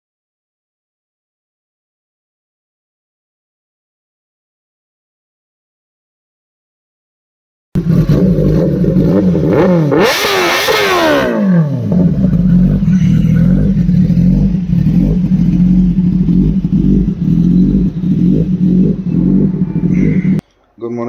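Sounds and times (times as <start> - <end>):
motorcycle engine revving: 7.8 - 20.4.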